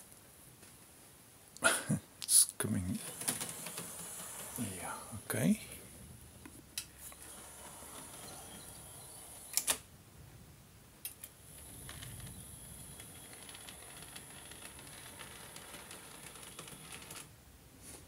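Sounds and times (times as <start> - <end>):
model train motor whine: 3.1 - 4.6, 7.2 - 9.6, 11.5 - 17.2.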